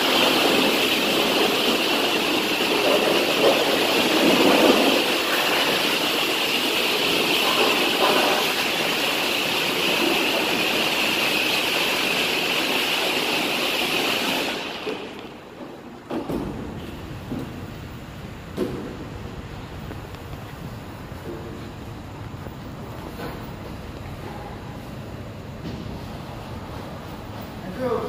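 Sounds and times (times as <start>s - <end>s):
pressure washer water spray hissing: 0.0s - 15.6s.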